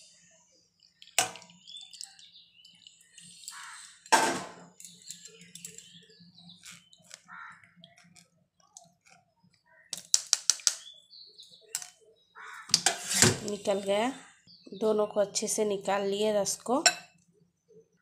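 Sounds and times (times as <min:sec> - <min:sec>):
small birds chirping: 0:00.0 - 0:04.1, 0:04.7 - 0:16.1
crows cawing: 0:03.5 - 0:04.0, 0:07.2 - 0:07.8, 0:12.4 - 0:12.8.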